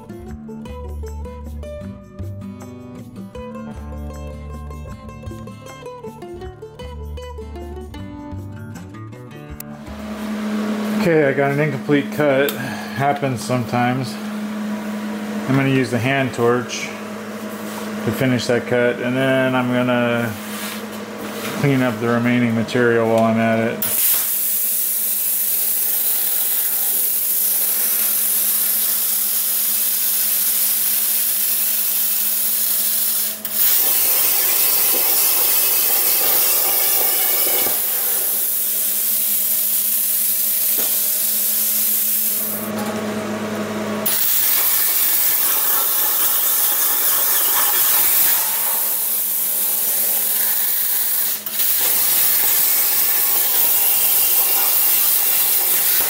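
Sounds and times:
plasma cutter torch hissing: 23.8s - 42.7s, 44.0s - 56.0s.

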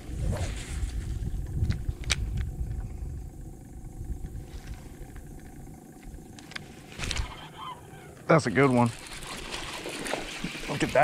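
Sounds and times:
wind buffeting microphone: 0.0s - 7.5s.

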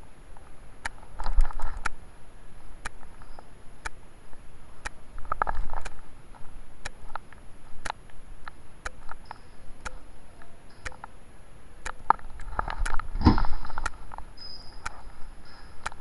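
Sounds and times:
faint rustling: 12.1s - 16.0s
muffled rustle or knock: 12.4s - 13.9s.

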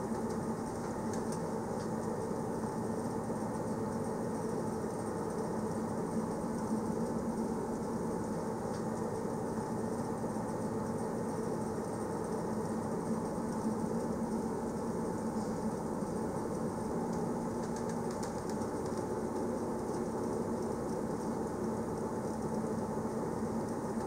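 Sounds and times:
faint ticks: 17.1s - 21.4s.

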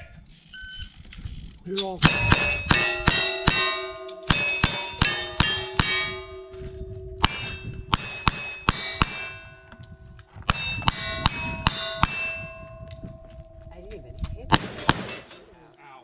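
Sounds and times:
gunshots: 2.0s - 6.3s, 7.2s - 9.4s, 10.5s - 12.5s, 14.5s - 15.4s
steel plate ringing clang: 2.0s - 13.2s, 14.7s - 15.5s.

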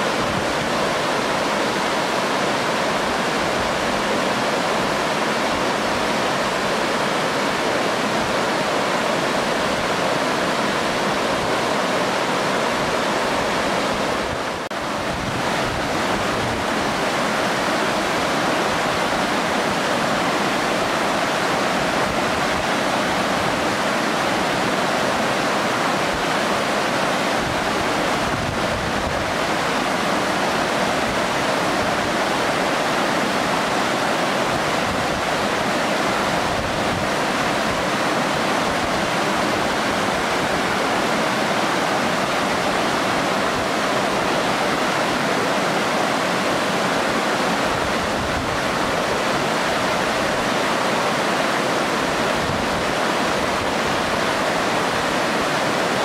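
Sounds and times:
stream rushing over stones: 0.0s - 56.0s
waterfall crashing into pool: 0.0s - 56.0s.

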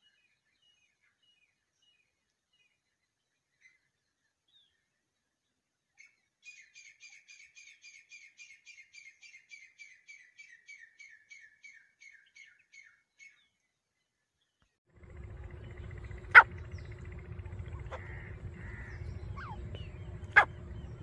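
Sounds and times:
francolin calling: 15.0s - 21.0s.

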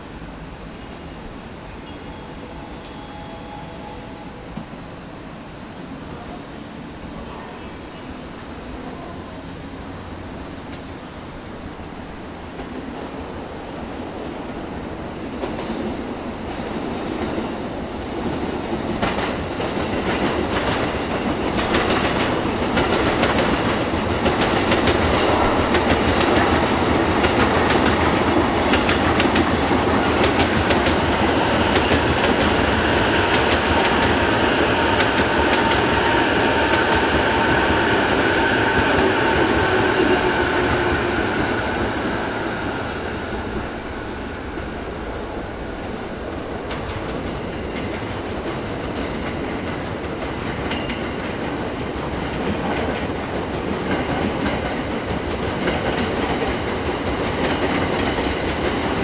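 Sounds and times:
steady high tone: 0.8s - 6.5s
train wheels clattering over rails: 14.2s - 59.0s.

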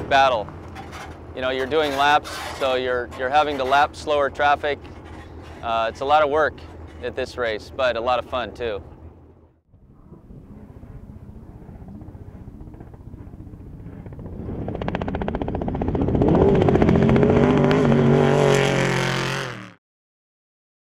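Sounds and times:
truck engine at high revs: 9.8s - 19.8s.

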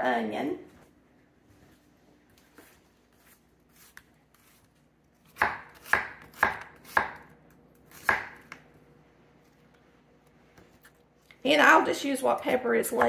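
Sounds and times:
knife chopping on wooden board: 5.3s - 7.3s, 7.9s - 8.6s.

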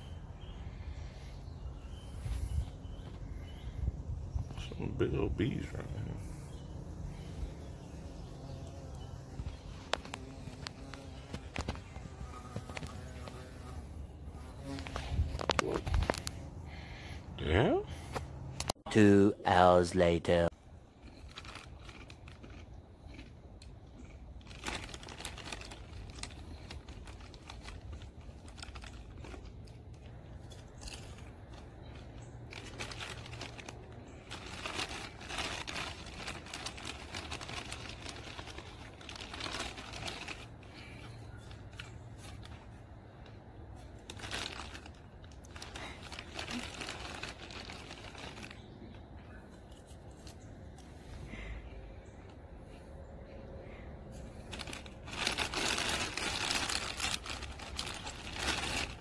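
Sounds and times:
chip bag crinkling: 8.5s - 13.7s, 21.0s - 49.1s, 54.4s - 59.0s
chips being crunched: 21.0s - 40.6s.

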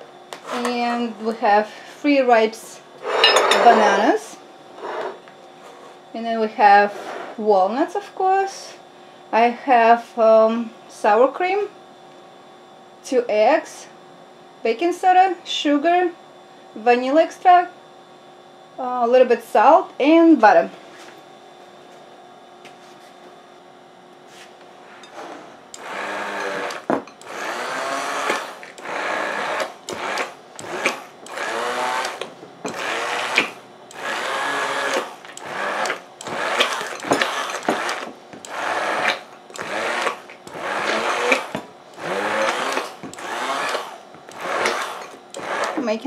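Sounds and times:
stick blender pureeing in bursts: 25.7s - 46.0s.

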